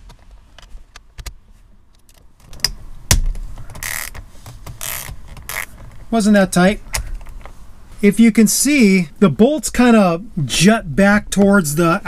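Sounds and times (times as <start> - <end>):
ratchet clicking and rattling: 3.7 - 4.2, 4.8 - 5.8.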